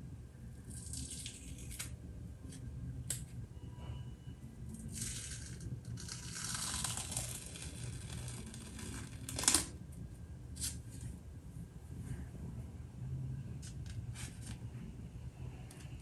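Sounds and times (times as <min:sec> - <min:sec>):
peel-off mask crackly tearing: 0:05.0 - 0:09.7.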